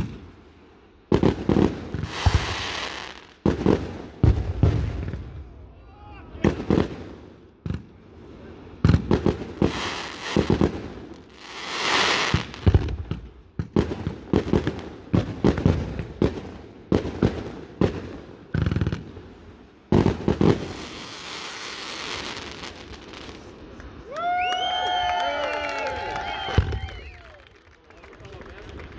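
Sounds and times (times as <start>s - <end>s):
fireworks hissing crackle: 0.0s - 5.1s, 9.2s - 13.0s, 19.9s - 24.0s
fireworks bangs: 1.1s - 5.5s, 6.4s - 19.1s, 19.9s - 23.5s, 26.2s - 27.2s.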